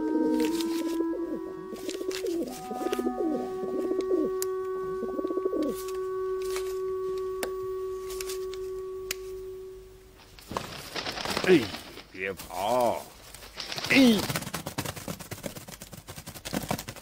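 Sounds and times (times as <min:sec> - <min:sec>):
pigeon cooing: 0:00.0 - 0:07.7
steady low tone: 0:00.0 - 0:10.5.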